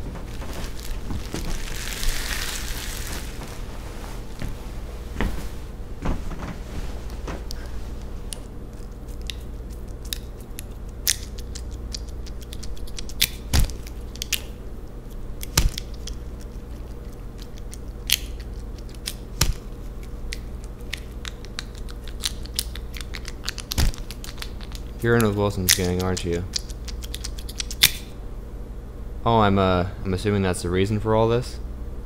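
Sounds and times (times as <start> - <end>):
low steady hum: 0.0 - 32.0
wet crunches and cracks: 8.3 - 28.1.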